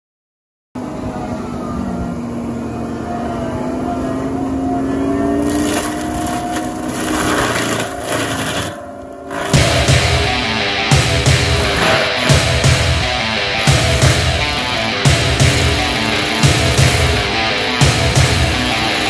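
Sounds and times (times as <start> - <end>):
loader engine with mulcher whine: 0.8 - 19.0
mulcher grinding wooden stump: 5.3 - 19.0.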